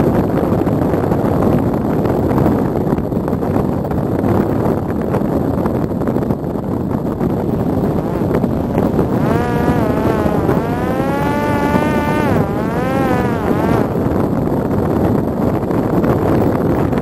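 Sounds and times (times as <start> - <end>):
wind rush on microphone: 0.0 - 17.0
drone motor whining: 8.0 - 14.0.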